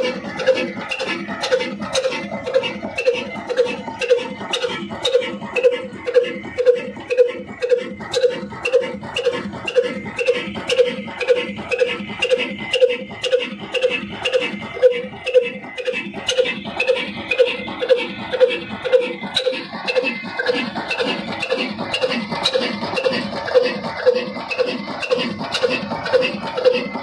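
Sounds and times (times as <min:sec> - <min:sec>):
sharp engine clicks: 0:00.0 - 0:27.0
stationary diesel engine chugging: 0:00.0 - 0:27.0.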